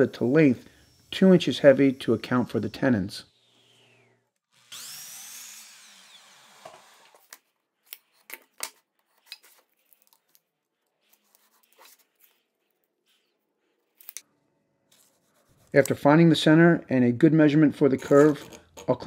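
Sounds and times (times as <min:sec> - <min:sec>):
saw blade winding down: 0:00.0 - 0:07.2
table saw cutting board: 0:00.0 - 0:07.3.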